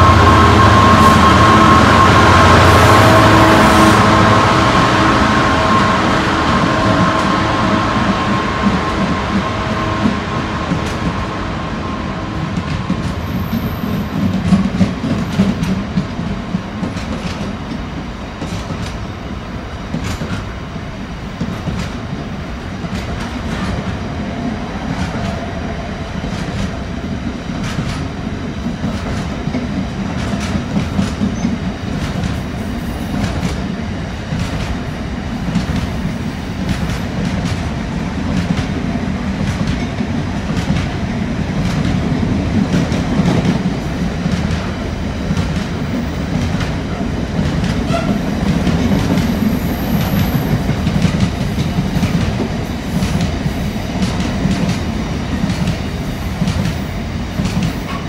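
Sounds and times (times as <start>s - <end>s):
diesel locomotive engine: 0.0s - 58.0s
train wheels clicking over rail joints: 12.3s - 58.0s.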